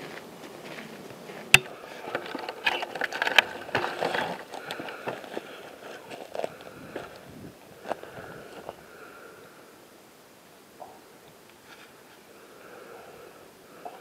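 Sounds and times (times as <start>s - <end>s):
footsteps on gravel: 0.0s - 8.8s.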